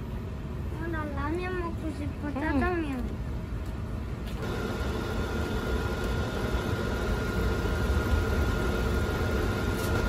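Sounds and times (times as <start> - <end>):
water boiling and bubbling: 4.4 - 9.8
thin machine whine: 4.4 - 10.0.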